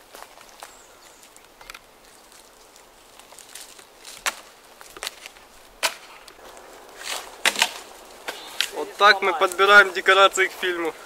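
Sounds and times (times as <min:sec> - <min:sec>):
footsteps on forest floor: 0:00.0 - 0:11.0
twigs snapping: 0:00.0 - 0:11.0.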